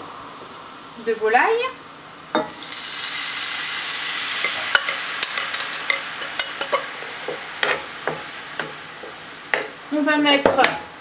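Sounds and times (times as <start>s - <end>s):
stock sizzling in a frying pan: 0.0s - 11.0s.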